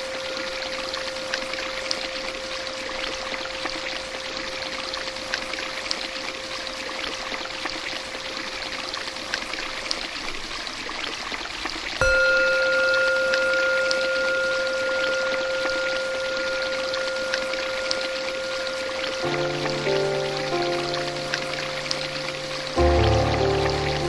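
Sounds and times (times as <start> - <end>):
running water splashing: 1.3 - 24.0
thin steady tone: 12.0 - 24.0.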